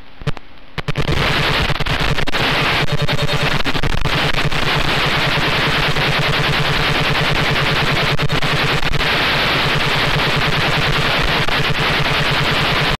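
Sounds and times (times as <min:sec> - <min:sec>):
radio static hiss: 0:00.0 - 0:13.0
rapid buzzing pulse: 0:00.8 - 0:13.0.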